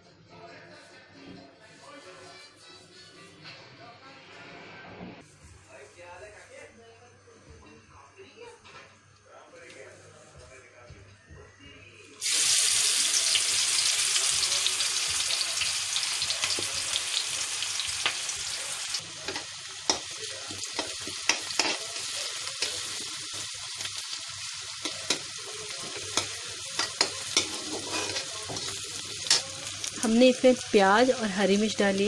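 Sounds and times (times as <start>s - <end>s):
onion frying in hot oil: 12.2s - 32.0s
metal spatula scraping pan: 24.8s - 29.5s.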